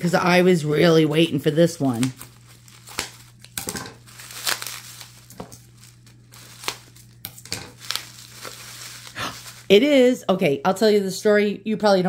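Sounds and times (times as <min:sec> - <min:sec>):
bubble wrap crinkling: 0:01.6 - 0:10.1.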